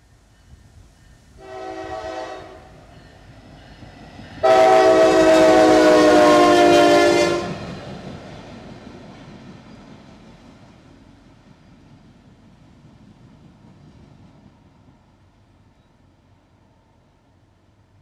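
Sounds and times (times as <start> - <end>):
locomotive horn blasts: 1.4 - 2.8, 4.4 - 7.6.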